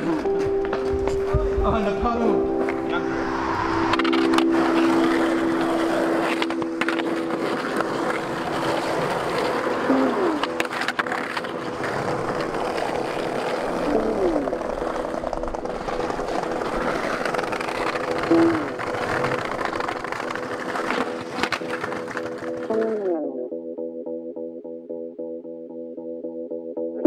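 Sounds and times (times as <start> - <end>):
skateboard wheels rolling on pavement: 0.0 - 23.2
skateboard clacking on ground: 3.9 - 23.2.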